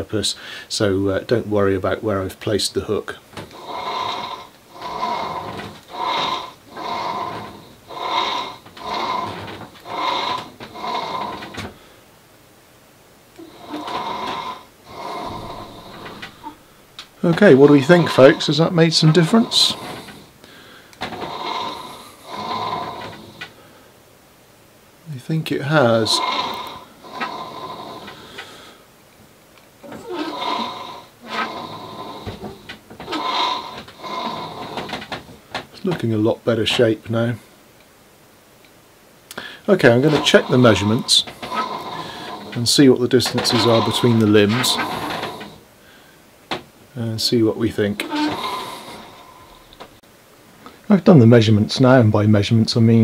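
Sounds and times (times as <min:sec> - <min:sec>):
bow rig squeaking: 0:29.8 - 0:35.2, 0:39.8 - 0:45.6, 0:48.0 - 0:50.0.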